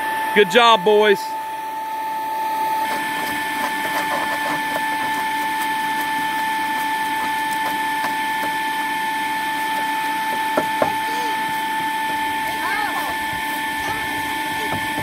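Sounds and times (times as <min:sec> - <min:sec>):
electric fan whining: 0:00.0 - 0:15.0.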